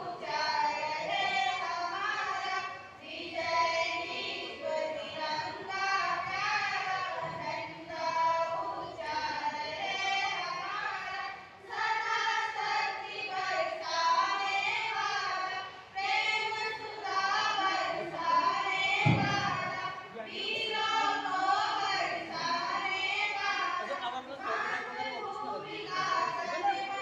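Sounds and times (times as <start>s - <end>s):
girls singing into a microphone: 0.0s - 27.0s
low thump: 19.0s - 19.8s.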